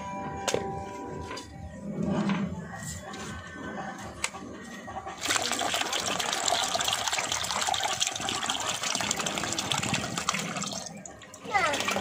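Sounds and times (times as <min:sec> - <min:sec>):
liquid pouring into basin: 0:05.2 - 0:12.0.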